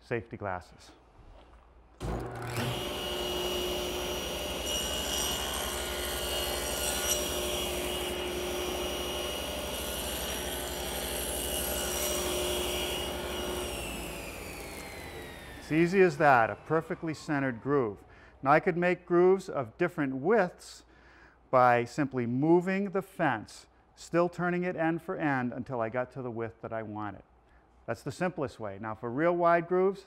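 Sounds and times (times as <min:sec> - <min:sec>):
table saw cutting plywood: 0:02.0 - 0:17.0
saw blade spinning down: 0:02.0 - 0:17.7.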